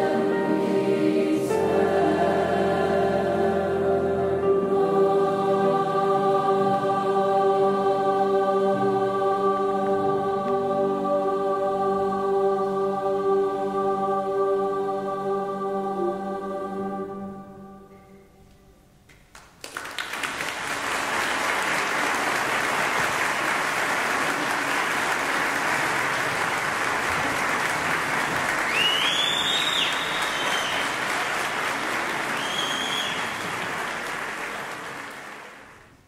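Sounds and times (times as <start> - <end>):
choir singing: 0.0 - 18.4
audience applause: 19.4 - 36.0
high whistles: 28.6 - 31.1, 32.3 - 33.5.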